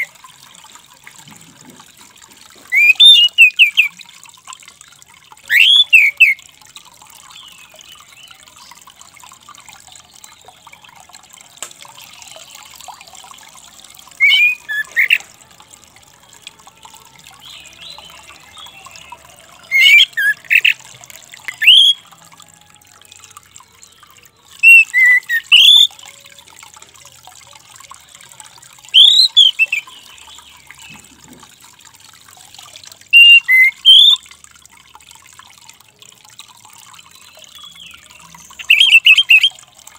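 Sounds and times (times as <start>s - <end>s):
thrush whistled calls: 2.7s - 4.0s, 5.4s - 6.4s, 14.1s - 15.2s, 19.6s - 20.8s, 21.4s - 22.0s, 24.6s - 26.0s, 28.9s - 30.0s, 33.1s - 34.2s, 38.6s - 39.6s.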